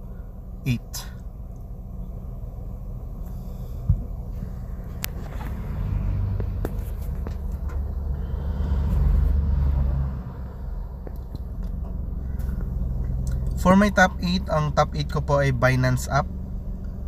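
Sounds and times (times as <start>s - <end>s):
vehicle rumble inside car: 0.0s - 17.0s.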